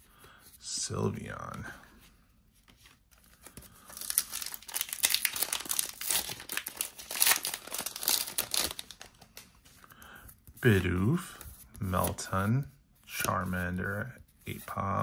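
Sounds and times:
foil wrapper crinkling: 3.8 - 9.5.

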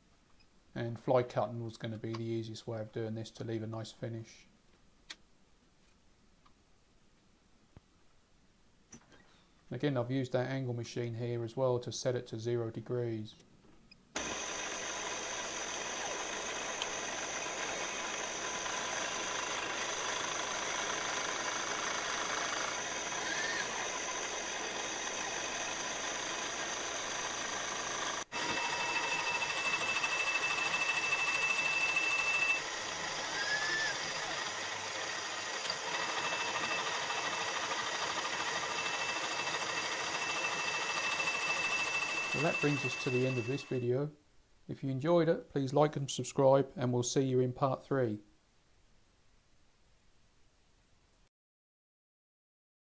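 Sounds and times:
milling machine hum: 14.2 - 43.8
high steady whine: 14.2 - 43.9.

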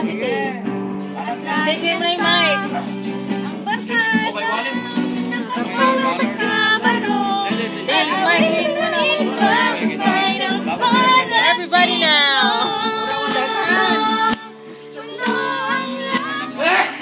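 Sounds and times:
guitar accompaniment: 0.0 - 17.0
person singing: 3.5 - 17.0.

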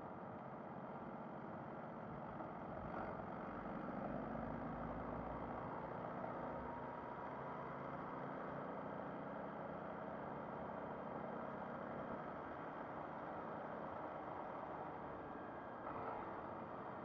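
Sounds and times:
road noise: 13.7 - 17.0.

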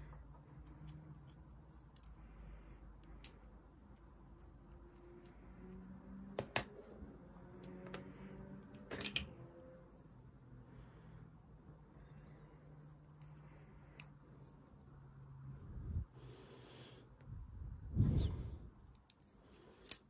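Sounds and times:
light clicks and taps of parts: 0.0 - 5.8, 12.0 - 14.2, 18.8 - 20.0.

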